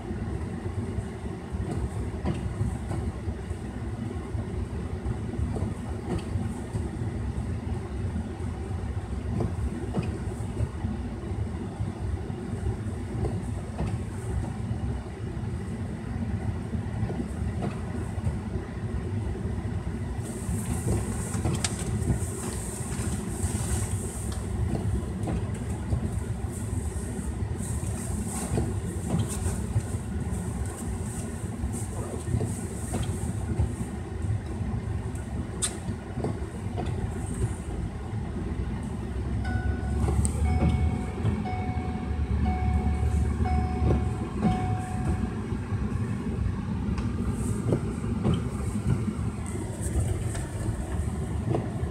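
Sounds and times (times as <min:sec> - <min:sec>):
car cabin rumble: 0:19.2 - 0:51.9.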